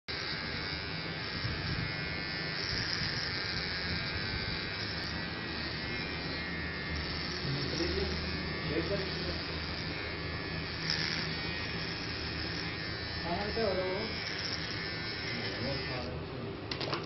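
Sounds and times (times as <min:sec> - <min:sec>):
electric trimmer buzzing: 0:00.1 - 0:16.3.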